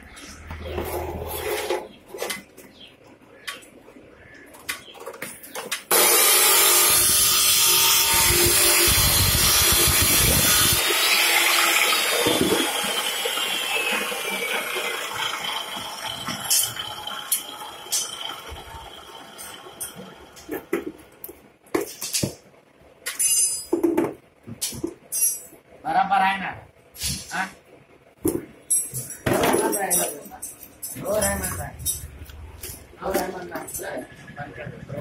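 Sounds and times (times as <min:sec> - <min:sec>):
saw winding down whine: 0:05.9 - 0:20.6
cut-off saw grinding steel: 0:05.9 - 0:20.7
steel bars clinking: 0:11.0 - 0:18.6, 0:23.1 - 0:23.8, 0:25.1 - 0:25.6, 0:28.6 - 0:32.8.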